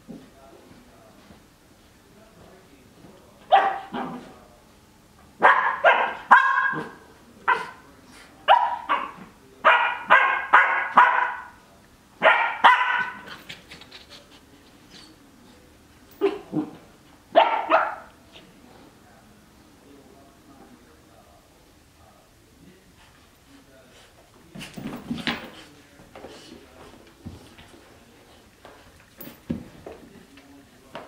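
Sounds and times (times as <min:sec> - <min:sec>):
puppy barking: 0:03.5 - 0:04.2, 0:05.4 - 0:07.8, 0:08.5 - 0:11.6, 0:12.2 - 0:13.3, 0:17.4 - 0:18.1.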